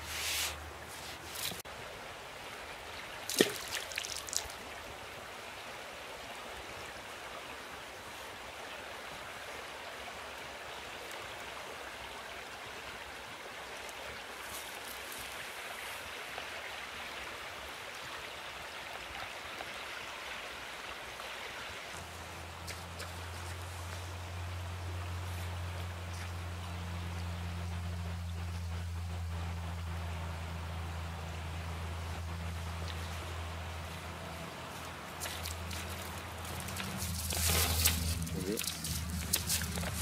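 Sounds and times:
river flowing: 0.0s - 40.0s.

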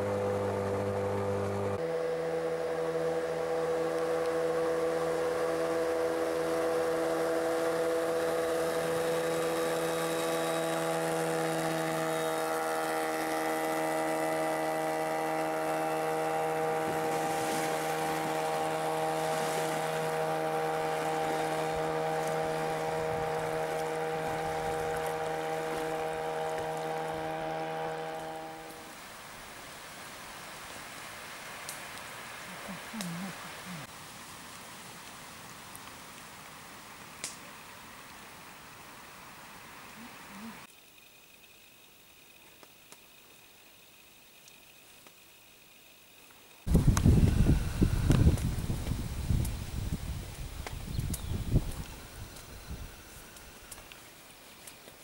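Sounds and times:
outboard motor running: 0.0s - 29.0s, 46.7s - 53.8s.

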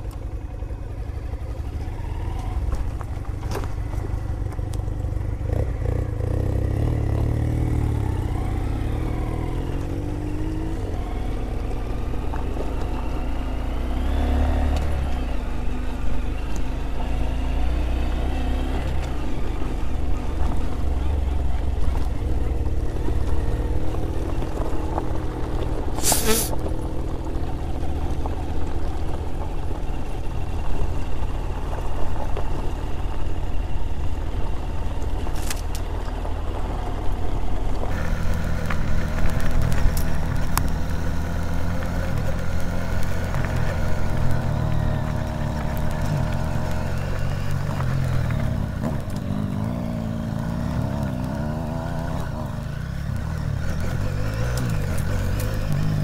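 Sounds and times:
motorcycle engine revving: 0.0s - 56.0s
brief sharp noise: 26.0s - 26.5s.

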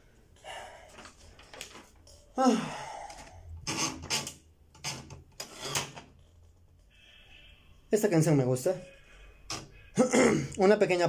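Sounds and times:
breathy vocal sounds and exhales: 2.1s - 3.6s.

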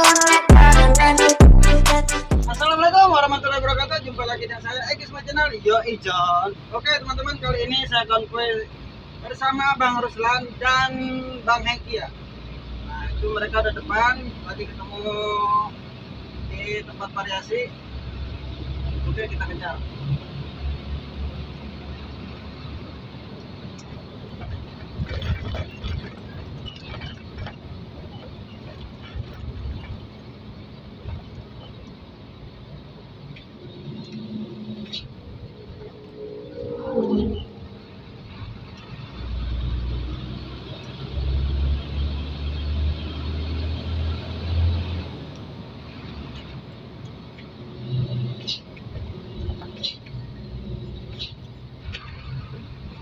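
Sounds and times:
road noise: 0.0s - 53.0s
diesel engine running: 17.7s - 53.0s.

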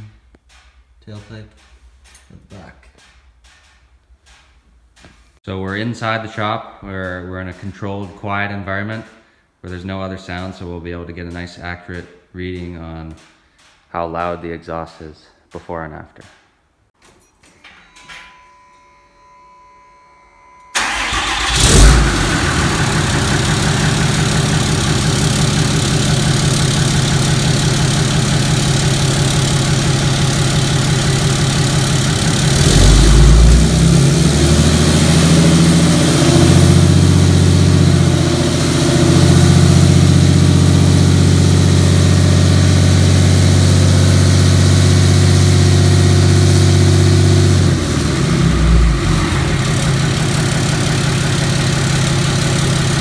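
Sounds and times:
diesel engine starting and idling: 20.7s - 53.0s.

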